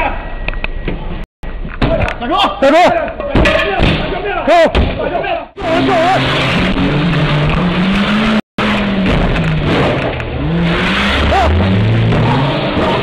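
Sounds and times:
car engine revving: 5.6s - 13.0s.

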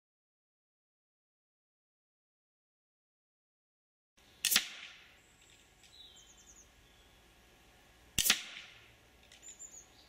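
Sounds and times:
air rifle shot: 4.4s - 5.2s, 8.2s - 8.9s
bird chirping faintly: 5.1s - 7.4s, 9.4s - 10.0s.

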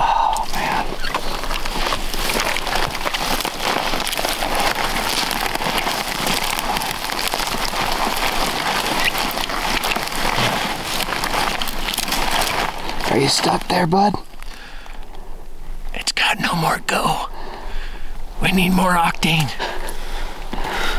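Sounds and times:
twigs scraping against clothing: 0.0s - 15.4s.

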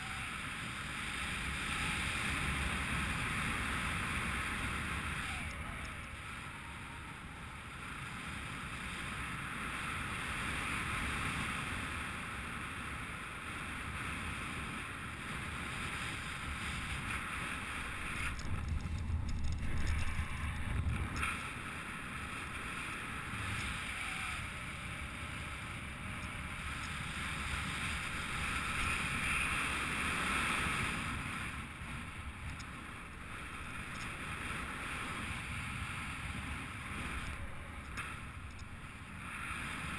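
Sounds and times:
wind hiss: 0.0s - 39.9s
wind buffeting: 15.7s - 23.8s
low rumble: 17.6s - 22.0s.

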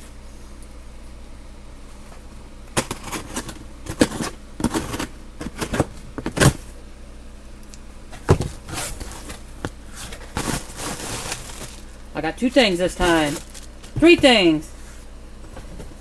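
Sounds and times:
cardboard box rustling and scraping: 8.5s - 11.9s, 13.0s - 13.7s.

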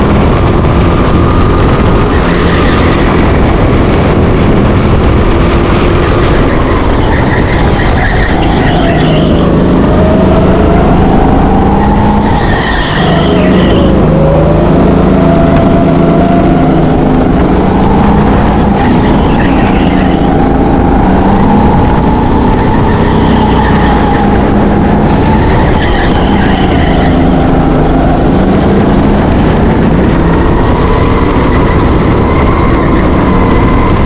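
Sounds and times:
go-kart engine running: 0.0s - 34.0s
tyres squealing: 6.8s - 14.4s.

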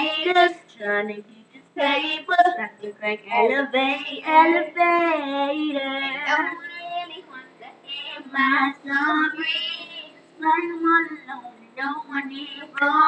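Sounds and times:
girls singing unaccompanied: 0.0s - 13.0s.

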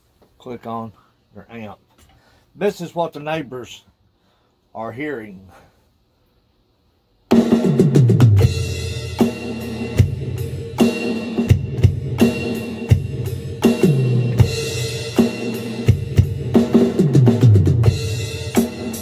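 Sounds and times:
electronic drum beat: 7.3s - 19.0s.

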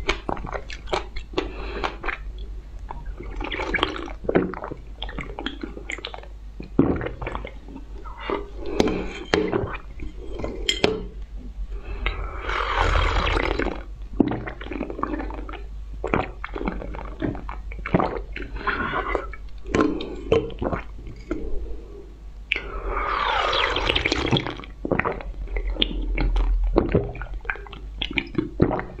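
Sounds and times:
wet slurping: 11.8s - 21.5s, 22.5s - 29.0s
squishy mouth sounds: 22.5s - 29.0s.

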